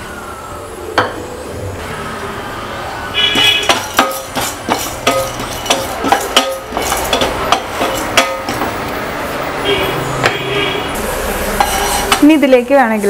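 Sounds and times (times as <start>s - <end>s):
wooden spoon knocking metal pan: 3.3s - 8.8s.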